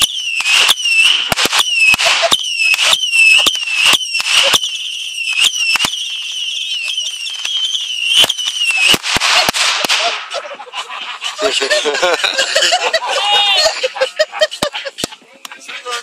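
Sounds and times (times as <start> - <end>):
firework whistle swooping down: 0.0 - 10.3
firework crackling pops: 0.0 - 10.4
firework sparks hissing: 0.0 - 12.8.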